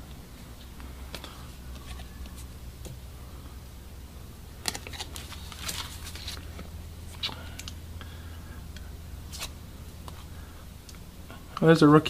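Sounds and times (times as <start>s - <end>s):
low hum: 0.0s - 11.6s
cards snapping and rustling: 4.6s - 7.8s.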